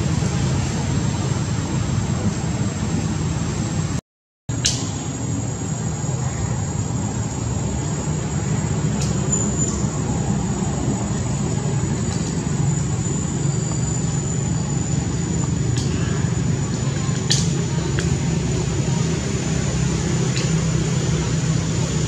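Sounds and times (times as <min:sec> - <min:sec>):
low mechanical hum: 0:00.0 - 0:22.0
faint clicks: 0:16.9 - 0:18.2.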